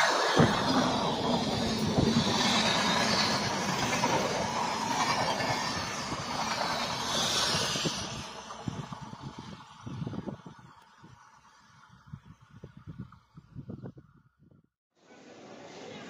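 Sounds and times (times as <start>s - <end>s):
train wheels rushing on rail: 0.0s - 11.3s.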